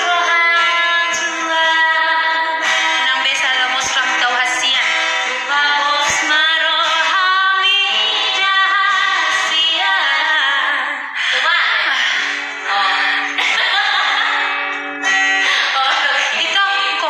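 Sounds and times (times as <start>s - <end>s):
acoustic guitar: 0.0s - 17.0s
women singing together: 0.0s - 17.0s.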